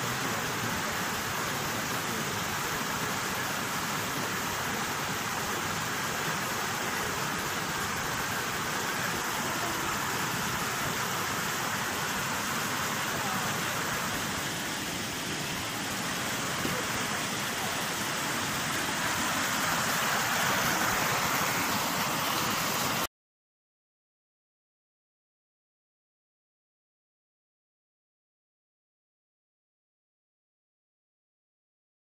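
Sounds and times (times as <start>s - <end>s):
river water rushing: 0.0s - 23.1s.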